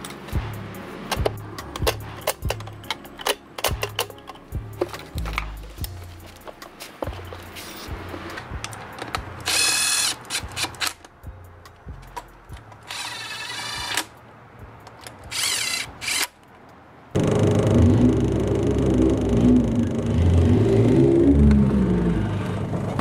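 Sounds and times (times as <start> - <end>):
power tool whirring: 9.4 - 10.9, 12.8 - 14.1, 15.3 - 16.3, 17.2 - 21.4
loud steady rumble: 17.1 - 23.0.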